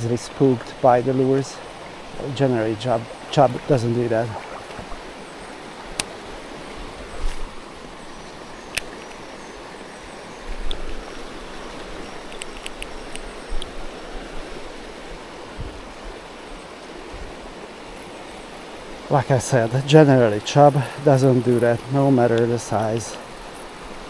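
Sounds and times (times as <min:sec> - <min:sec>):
creek water running over rocks: 0:00.0 - 0:24.0
sharp clicks: 0:12.3 - 0:13.7.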